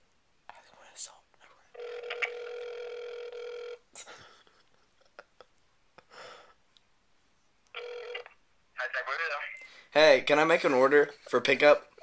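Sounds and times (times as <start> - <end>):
phone ringback tone: 1.8 - 3.8, 7.8 - 8.4.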